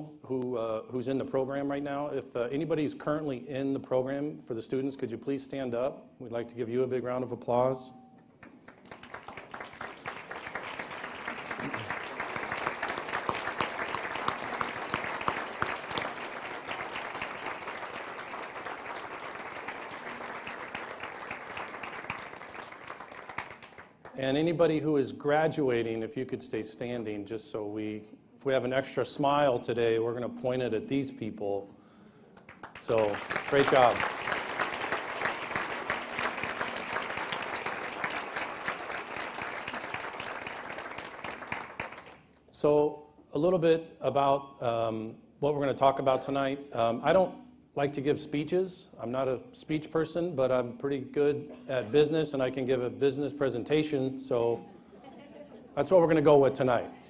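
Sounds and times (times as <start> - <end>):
audience applauding: 8.4 - 24.2, 32.4 - 42.2.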